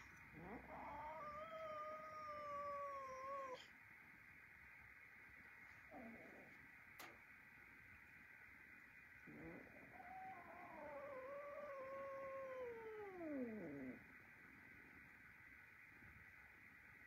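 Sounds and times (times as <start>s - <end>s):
cat meowing: 0.4s - 3.6s, 9.5s - 14.0s.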